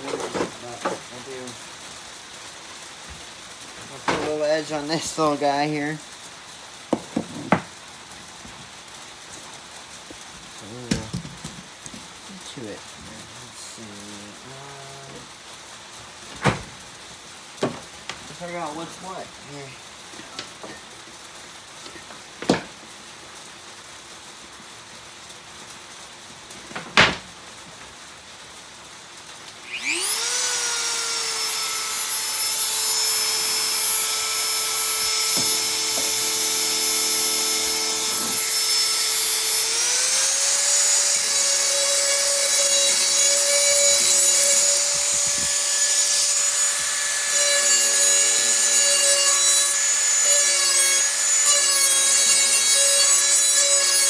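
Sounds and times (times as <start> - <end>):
rotary tool whining: 29.7 - 54.0
grinding on metal edge: 32.8 - 54.0.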